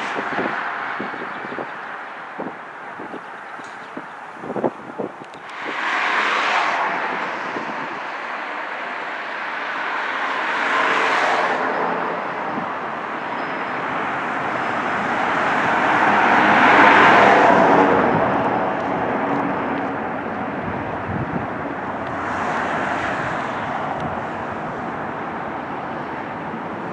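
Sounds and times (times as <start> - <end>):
road traffic passing: 0.0 - 26.9.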